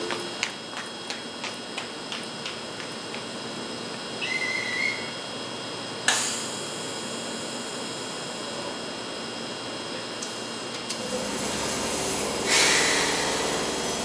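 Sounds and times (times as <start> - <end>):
train doors air hiss: 6.1 - 6.6, 10.3 - 14.0.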